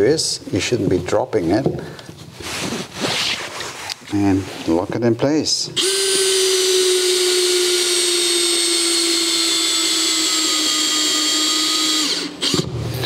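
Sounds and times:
cordless drill whining: 5.8 - 13.0.

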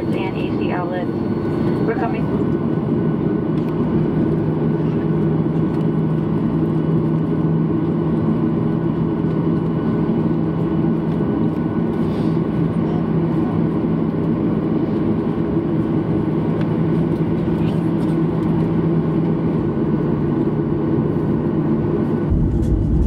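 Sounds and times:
jet engine rumble: 0.0 - 23.0
steady low hum: 0.0 - 23.0.

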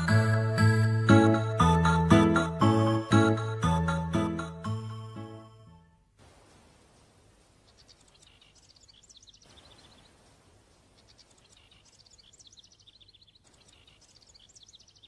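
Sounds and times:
light hiss: 6.2 - 12.2
high bird chirps and trills: 11.0 - 15.0.

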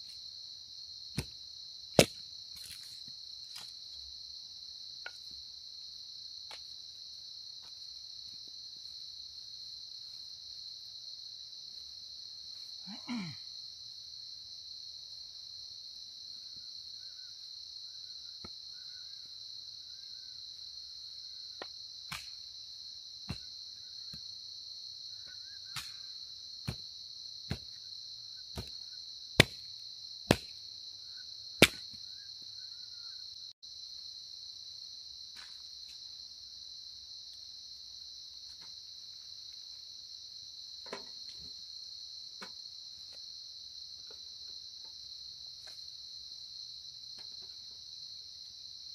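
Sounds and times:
crickets chirring: 0.0 - 48.9
chopping tool splitting firewood: 2.0 - 2.2, 29.4 - 29.7, 30.3 - 30.5.

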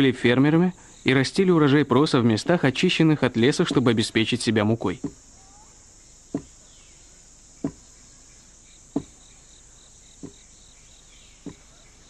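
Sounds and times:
insects chirring: 0.0 - 12.0
pestle pounding in wooden mortar: 7.6 - 7.8, 8.9 - 9.2.

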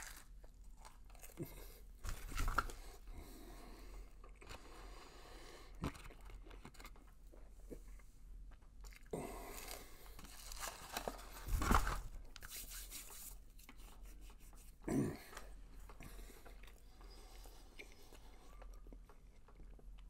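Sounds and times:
man chewing food: 0.0 - 11.6, 13.4 - 20.0.

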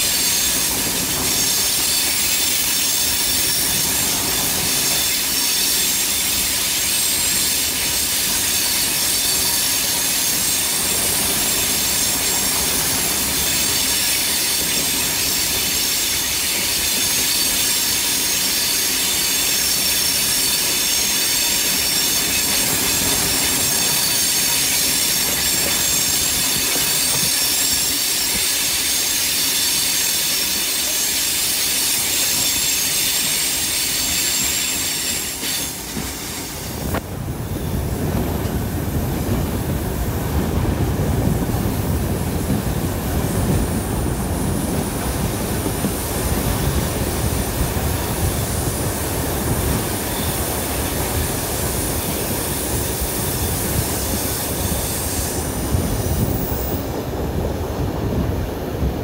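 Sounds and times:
wheels squealing: 0.0 - 37.0
train wheels on track: 0.0 - 59.0.

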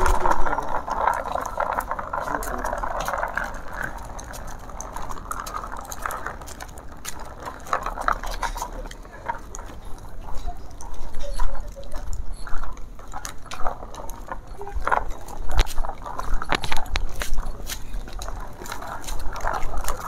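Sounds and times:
small plastic wheels rolling: 0.0 - 20.0
dog claws tapping on asphalt: 0.1 - 20.0.

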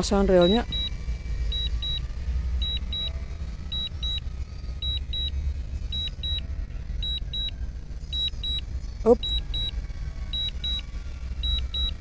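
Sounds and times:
short high beeps: 8.2 - 9.7, 11.4 - 12.0.

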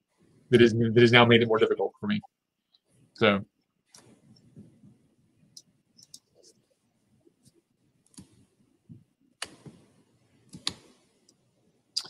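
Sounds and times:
computer mouse clicks: 5.5 - 6.3, 8.0 - 8.4, 10.5 - 11.4.

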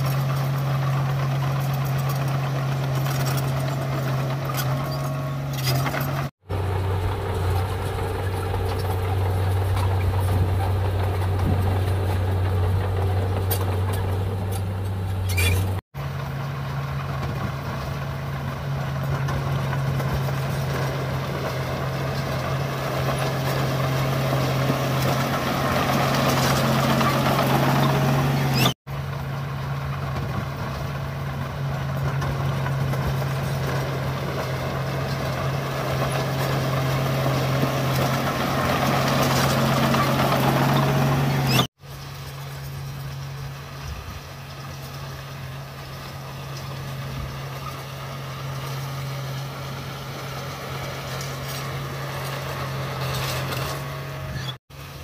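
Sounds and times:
bulldozer diesel engine running: 0.0 - 55.0
soil and rock clattering: 0.0 - 55.0.

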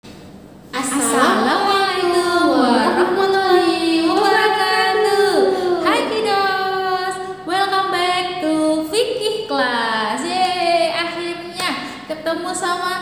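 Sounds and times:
women singing: 0.9 - 6.0.

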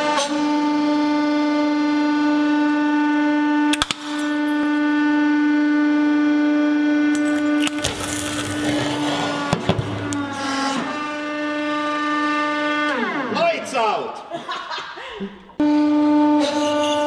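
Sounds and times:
hydraulic press whining: 0.0 - 13.4.

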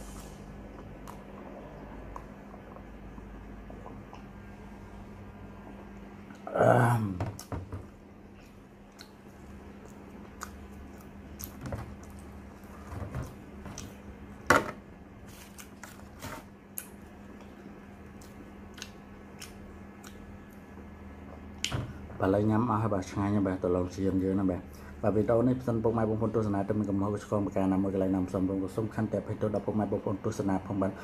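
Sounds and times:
man burping: 6.4 - 7.4.

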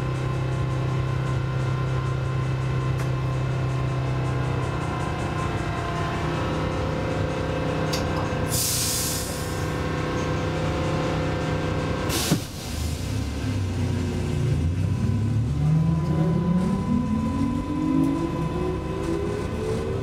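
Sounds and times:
tram electrical hum: 0.0 - 20.0
air hissing: 8.5 - 9.6
traction motor whine rising: 13.8 - 20.0.

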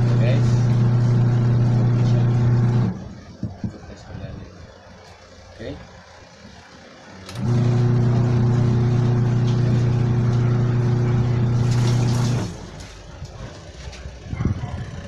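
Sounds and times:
washing machine motor humming: 0.0 - 15.0.

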